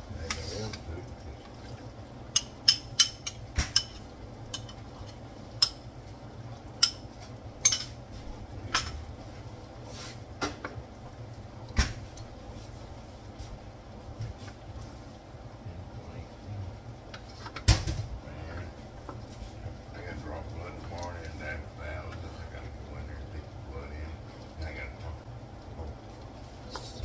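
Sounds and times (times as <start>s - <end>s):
low steady hum: 0.0s - 27.0s
utensils clinking against pan and bowl: 2.3s - 5.8s, 6.8s - 8.0s.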